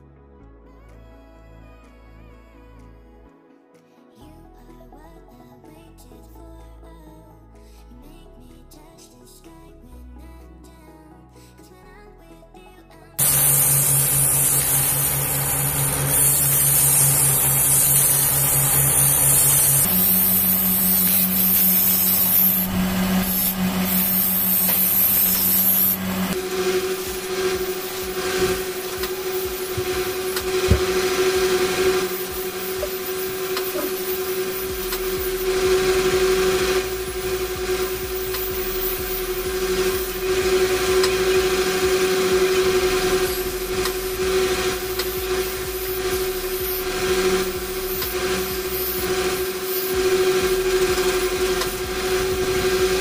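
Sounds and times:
bench grinder motor hum: 13.2s - 53.0s
blade grinding on wheel: 13.2s - 53.0s.

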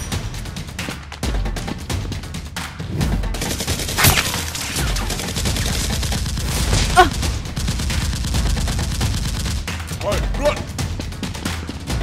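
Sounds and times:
rapid gunfire: 3.2s - 10.3s
loud gunshot bangs: 3.9s - 9.6s.

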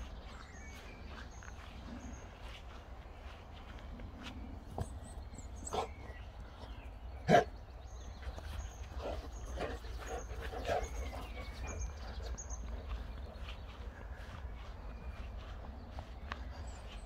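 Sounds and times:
dog barking: 7.3s - 7.5s.

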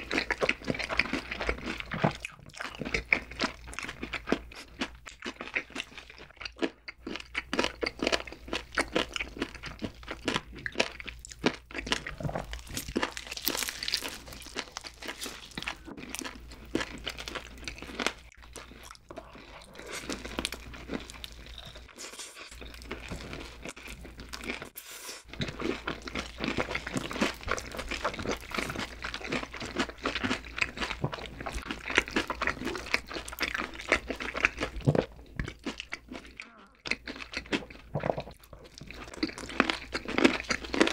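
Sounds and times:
crunching and chewing: 0.0s - 40.9s.

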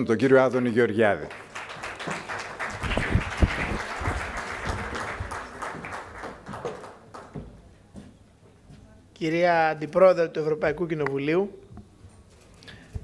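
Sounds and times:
audience applauding: 1.2s - 7.4s.

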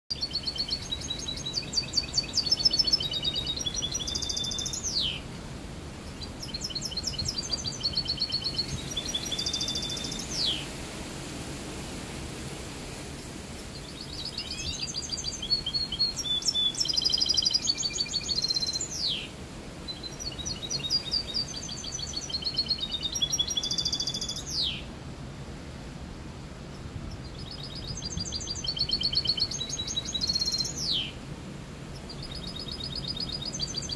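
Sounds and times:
songbird trilling and chirping: 0.1s - 5.3s, 6.0s - 10.7s, 13.7s - 19.3s, 19.9s - 24.9s, 26.7s - 31.2s, 31.9s - 33.9s.

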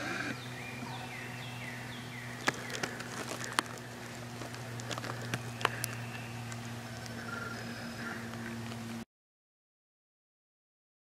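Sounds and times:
steady low hum: 0.0s - 9.1s
sharp clicks and crackles: 2.4s - 7.2s.

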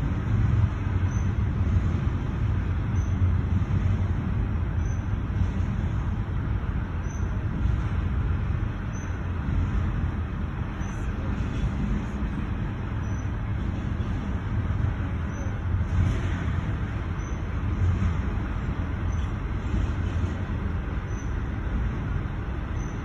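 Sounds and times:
freight train rumbling past: 0.0s - 23.0s.

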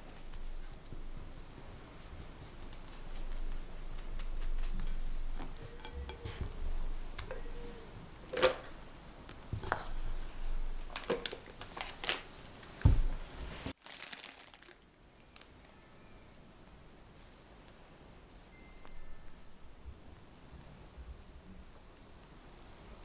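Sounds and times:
plastic piping bag crinkling: 10.8s - 12.3s, 13.7s - 15.6s.

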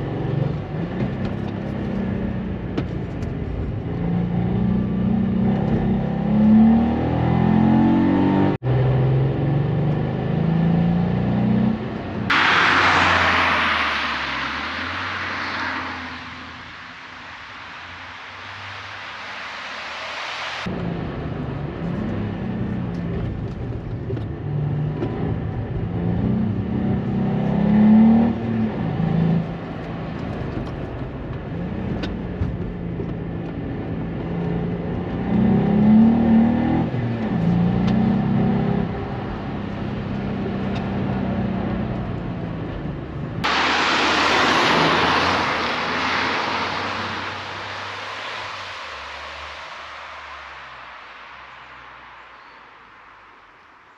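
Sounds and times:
car engine accelerating: 0.0s - 52.6s
rushing hiss: 43.5s - 52.3s.

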